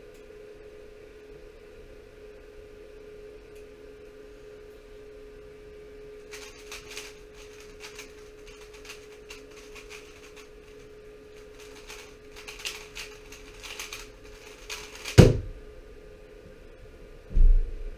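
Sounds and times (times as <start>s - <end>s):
faint steady hum: 0.0s - 17.9s
cube thump on desk mat: 15.0s - 15.6s.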